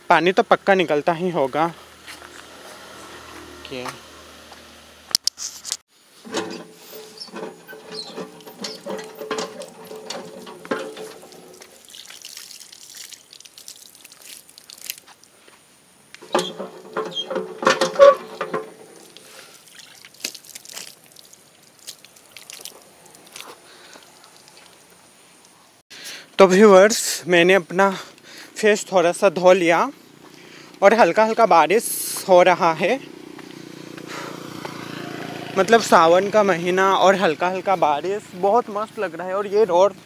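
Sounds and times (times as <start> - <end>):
hand pump creaking and clanking: 6.2 - 12.5, 16.2 - 21.0
water splashing on concrete: 8.2 - 15.4, 18.2 - 24.9.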